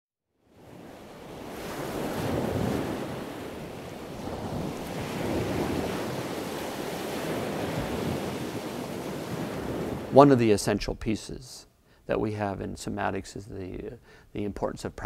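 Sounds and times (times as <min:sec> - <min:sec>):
ocean surf rushing: 0:00.6 - 0:10.5.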